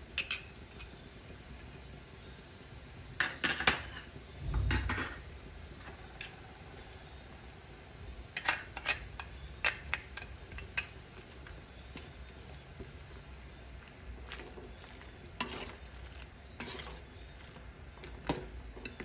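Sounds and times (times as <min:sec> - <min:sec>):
metal utensils clinking on wok: 0:08.4 - 0:10.9.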